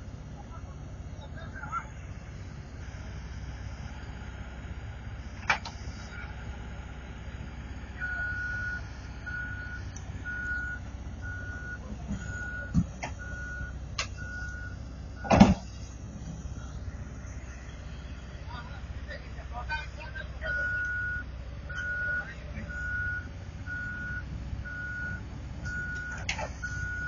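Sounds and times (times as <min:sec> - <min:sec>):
diesel engine running: 0:00.0 - 0:27.0
backup alarm beeping: 0:08.0 - 0:15.6, 0:20.4 - 0:27.0.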